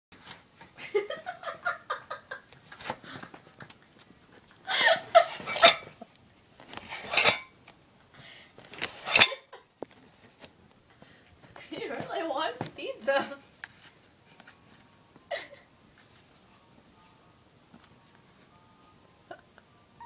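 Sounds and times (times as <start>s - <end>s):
person giggling: 0.8s - 2.5s, 4.6s - 6.1s, 15.3s - 15.7s, 19.2s - 19.7s
plates clinking: 5.4s - 6.0s, 6.9s - 7.5s, 9.0s - 9.6s.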